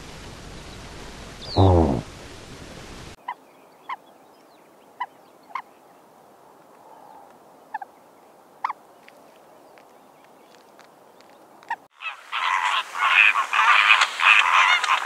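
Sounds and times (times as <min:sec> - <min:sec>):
steady outdoor hiss: 0:00.0 - 0:15.0
short sharp bird calls: 0:01.4 - 0:02.0.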